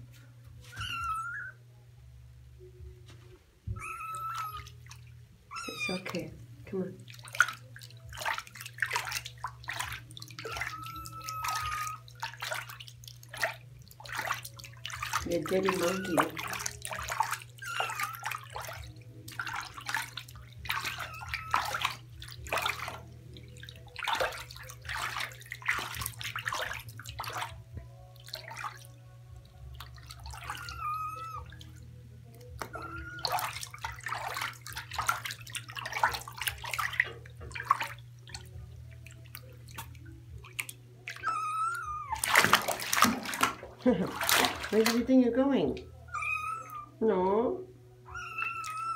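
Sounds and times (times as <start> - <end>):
kitten mewing: 0.7 - 1.6, 3.7 - 4.8, 5.5 - 6.2, 10.5 - 12.0, 17.6 - 18.4, 20.7 - 22.0, 30.3 - 31.6, 32.7 - 33.6, 41.2 - 42.7, 46.1 - 46.9, 48.1 - 48.9
bath water splashing: 3.7 - 46.8.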